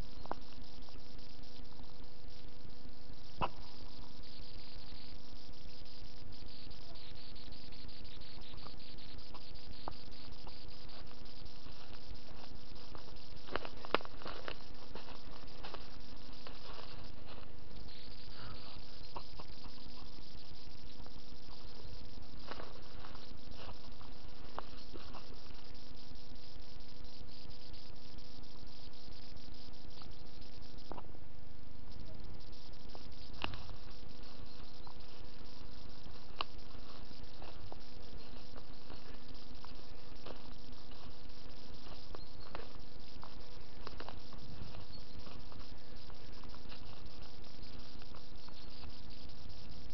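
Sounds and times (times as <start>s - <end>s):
high hiss: 0.0s - 49.9s
low hum: 0.0s - 49.9s
footsteps on dry leaves and twigs: 8.0s - 26.0s, 32.9s - 49.2s.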